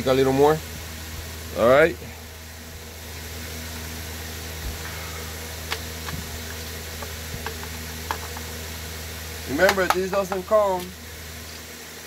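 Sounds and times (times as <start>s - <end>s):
steady background hum: 0.0s - 12.0s
hands tapping plastic body: 9.6s - 10.5s.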